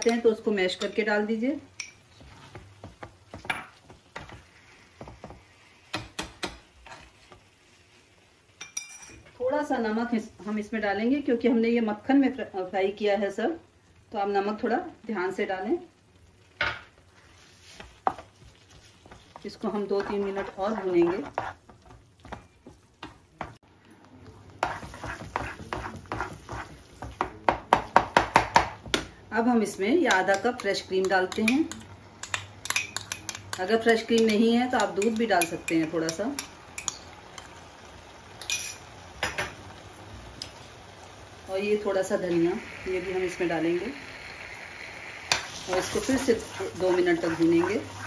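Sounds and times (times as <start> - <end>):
spoon scraping frying pan: 0.0 - 7.7, 16.8 - 23.6, 24.5 - 27.4, 30.1 - 37.6, 38.4 - 39.6, 45.2 - 48.0.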